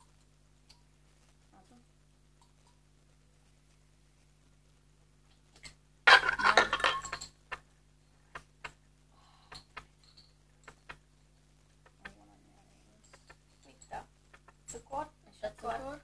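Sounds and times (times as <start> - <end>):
tableware clattering and rustling: 5.6 - 7.7
light clicks and clinks: 9.5 - 11.0.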